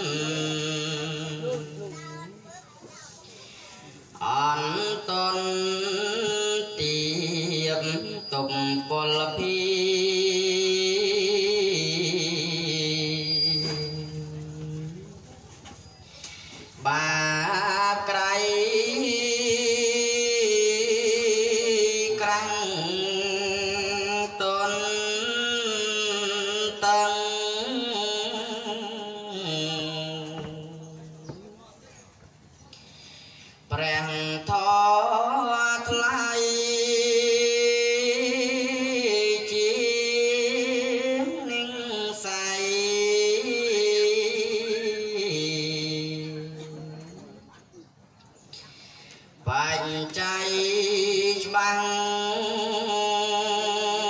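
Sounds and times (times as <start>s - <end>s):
monk chanting: 0.0s - 2.4s, 3.6s - 32.0s, 33.6s - 47.8s, 49.4s - 54.0s.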